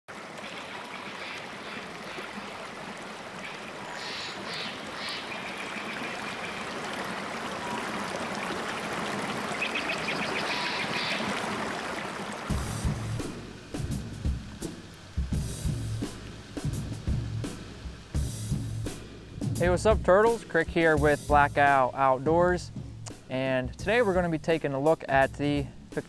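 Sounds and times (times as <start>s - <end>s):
stream running over rocks: 0.1s - 19.3s.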